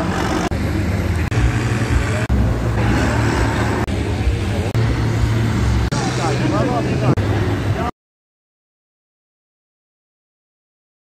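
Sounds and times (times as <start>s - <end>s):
tractor diesel engines droning: 0.0s - 7.9s.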